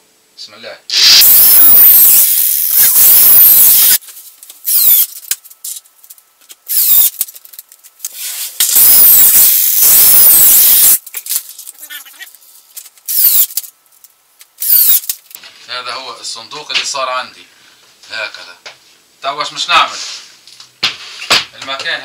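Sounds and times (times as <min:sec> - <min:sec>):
cordless drill motor whine: 0:00.9 - 0:04.0, 0:08.7 - 0:11.0.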